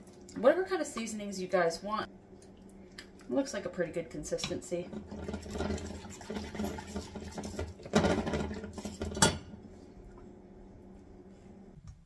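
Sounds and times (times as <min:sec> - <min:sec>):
whisk scraping saucepan: 0:04.9 - 0:09.4
spatula stirring in skillet: 0:05.0 - 0:09.3.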